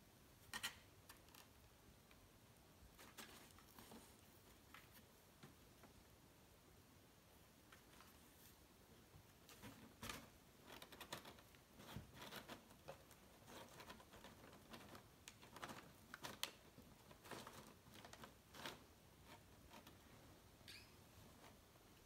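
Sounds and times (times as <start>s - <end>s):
cat rustling in cardboard box: 3.0s - 5.1s.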